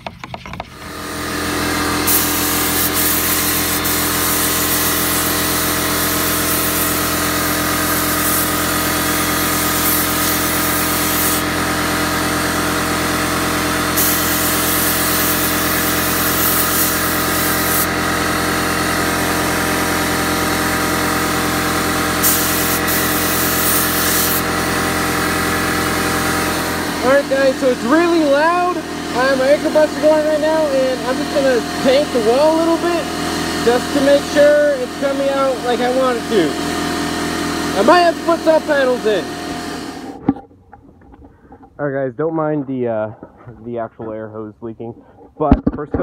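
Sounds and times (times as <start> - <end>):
air compressor running: 0.6 - 41.8
paint spray gun hissing: 0.7 - 40.2.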